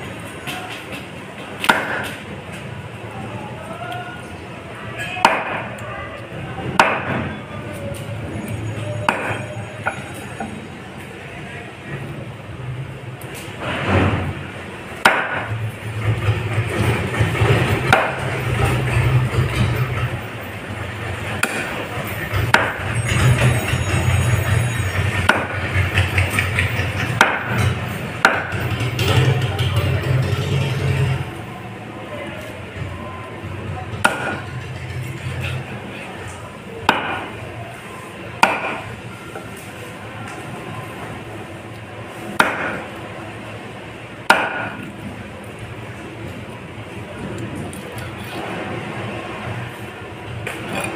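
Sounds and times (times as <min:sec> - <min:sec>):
cleaver chopping fish: 0:36.9 - 0:37.3, 0:38.4 - 0:38.8, 0:42.4 - 0:42.8, 0:44.2 - 0:44.8.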